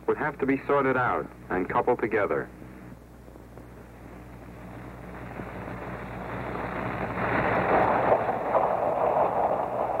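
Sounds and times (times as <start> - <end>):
locomotive rumbling and rattling: 3.2 - 10.0.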